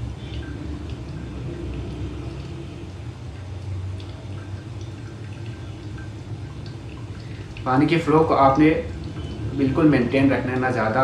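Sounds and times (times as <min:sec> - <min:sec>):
low steady rumble: 0:00.0 - 0:11.0
small water drips: 0:00.0 - 0:11.0
water pouring in thin stream: 0:00.0 - 0:11.0.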